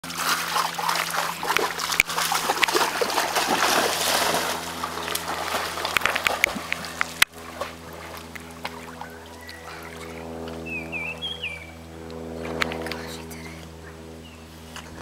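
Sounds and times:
dog splashing through water: 0.0s - 10.2s
water sloshing and dripping: 0.0s - 10.6s.

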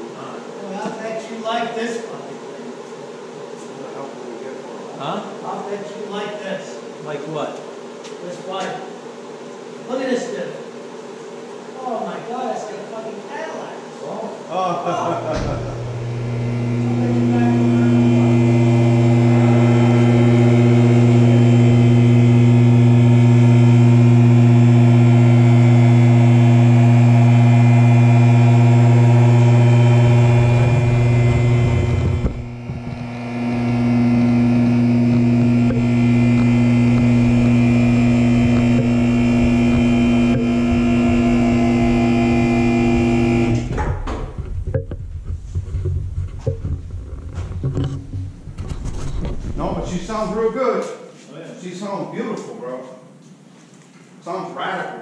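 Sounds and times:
hydraulic pump motor humming: 15.0s - 50.5s.

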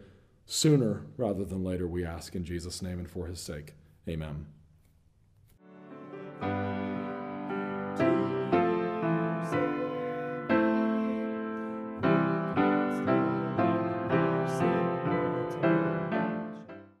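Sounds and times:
slow piano chords: 5.6s - 16.9s.

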